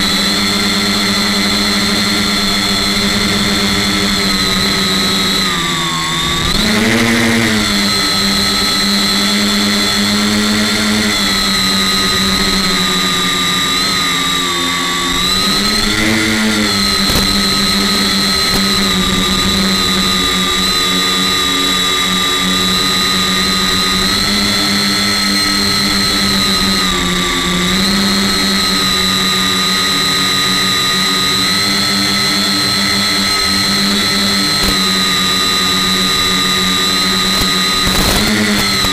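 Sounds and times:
drone motors humming and whining: 0.0s - 38.9s.

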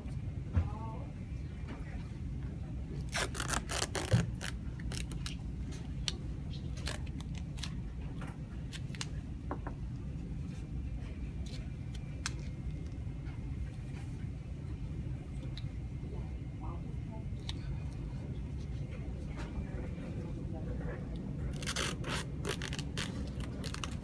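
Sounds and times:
tape ripping: 3.1s - 5.4s, 21.5s - 24.0s.

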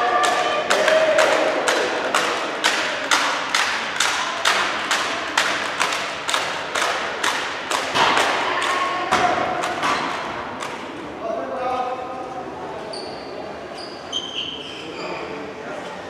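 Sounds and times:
sharp knocks echoing in hall: 0.0s - 11.1s.

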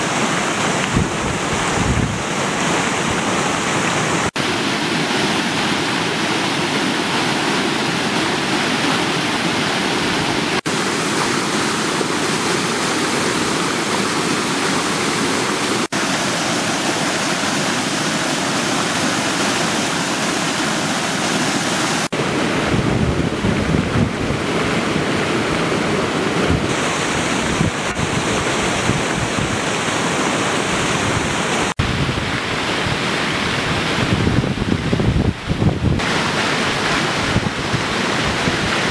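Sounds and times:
water rushing over weir: 0.0s - 38.9s
wind buffeting microphone: 0.9s - 2.3s, 22.2s - 29.7s, 30.8s - 36.1s, 37.1s - 38.9s.

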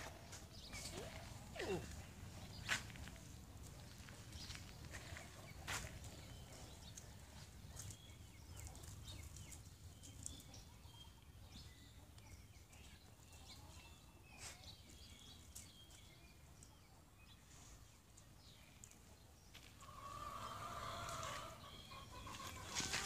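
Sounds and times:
dogs' paws on gravel: 0.0s - 10.7s, 18.4s - 23.0s.

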